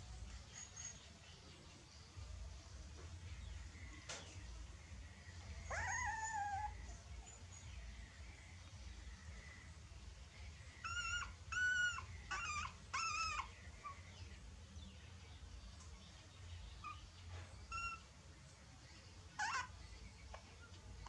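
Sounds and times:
puppies whimpering: 0:05.5 - 0:07.4, 0:10.8 - 0:14.2, 0:16.8 - 0:18.1, 0:19.4 - 0:19.8.

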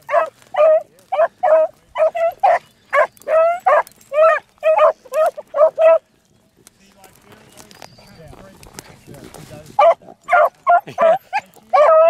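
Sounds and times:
dogs baying: 0:00.0 - 0:06.2, 0:09.8 - 0:12.0.

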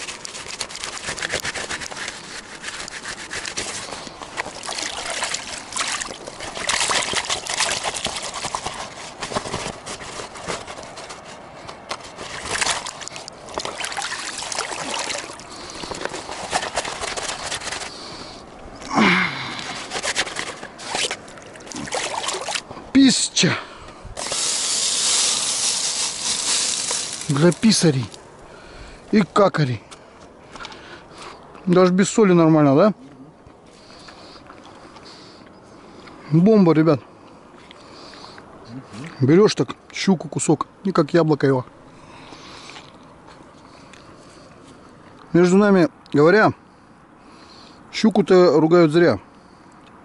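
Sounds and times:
clicks and rustles: 0:00.0 - 0:18.0, 0:19.6 - 0:22.6, 0:24.2 - 0:28.2.

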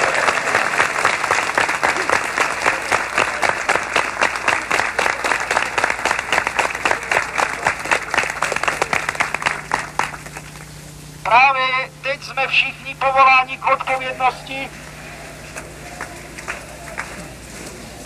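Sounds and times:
crowd applauding: 0:00.0 - 0:10.7, 0:14.8 - 0:18.0.

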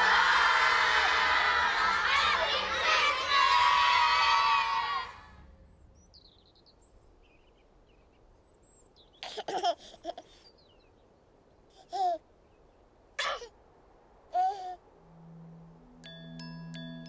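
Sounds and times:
crowd singing and cheering: 0:00.0 - 0:05.2
faint birdsong chirps: 0:02.4 - 0:17.0
baby giggling: 0:09.2 - 0:10.5, 0:11.8 - 0:12.2, 0:14.4 - 0:14.8.

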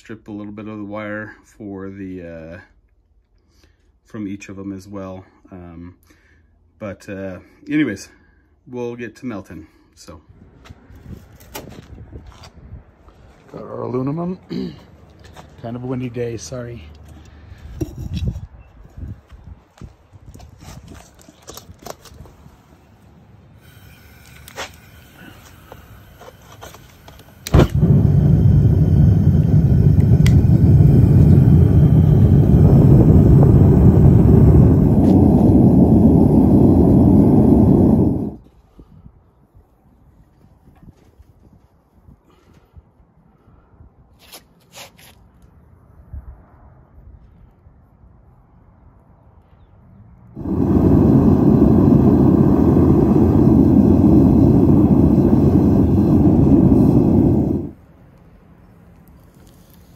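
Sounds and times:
furnace burner roar: 0:23.6 - 0:38.5, 0:50.3 - 0:57.9
burner igniting pop: 0:24.2 - 0:38.4.

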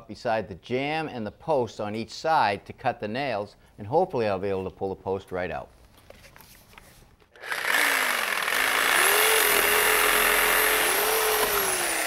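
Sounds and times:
reciprocating saw cutting: 0:07.4 - 0:12.0.

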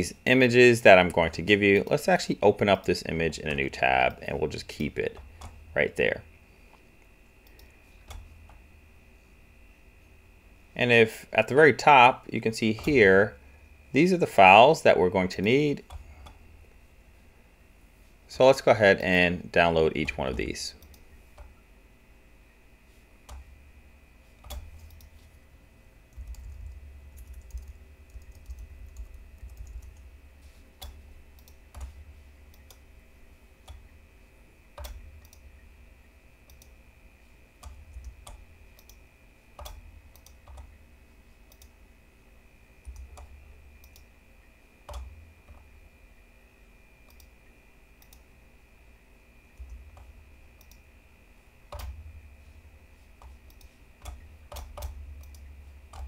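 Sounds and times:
faint steady hum: 0:00.0 - 0:56.0
computer mouse clicks: 0:07.4 - 0:08.6, 0:20.8 - 0:21.6, 0:23.2 - 0:23.5, 0:24.4 - 0:25.3, 0:26.1 - 0:30.1, 0:30.8 - 0:32.8, 0:34.8 - 0:35.6, 0:36.5 - 0:36.8, 0:37.6 - 0:39.0, 0:39.6 - 0:40.8, 0:41.5 - 0:41.8, 0:42.8 - 0:44.1, 0:44.9 - 0:45.7, 0:47.0 - 0:47.4, 0:48.0 - 0:48.3, 0:49.6 - 0:50.8, 0:51.7 - 0:52.0, 0:53.2 - 0:56.0.

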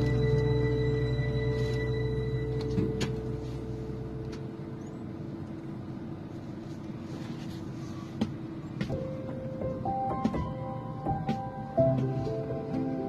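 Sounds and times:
background music: 0:00.0 - 0:03.7, 0:08.9 - 0:13.0
vehicle cabin noise: 0:00.0 - 0:13.0.

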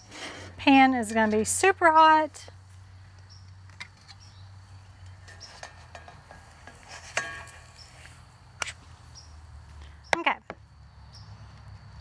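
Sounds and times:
spatula scraping cast iron skillet: 0:05.0 - 0:08.8.

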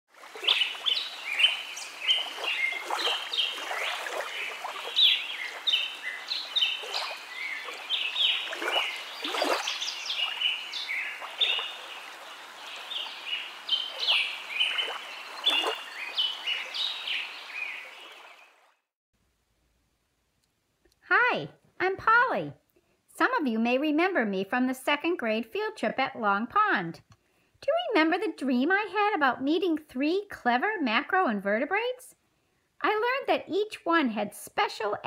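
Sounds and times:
birds chirping: 0:00.2 - 0:18.9.

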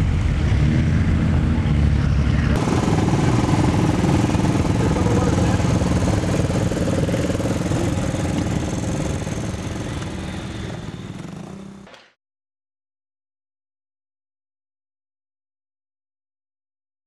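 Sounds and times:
atv engine running: 0:00.0 - 0:11.9.

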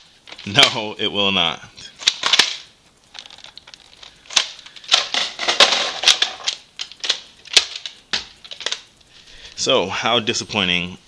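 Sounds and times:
hard plastic clicking and rattling: 0:02.0 - 0:08.8.

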